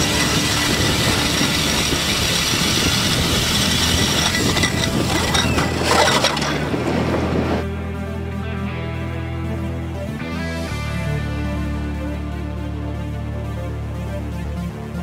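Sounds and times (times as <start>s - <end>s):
cordless drill motor whining: 0.0s - 6.5s
ice auger grinding ice: 0.0s - 7.6s.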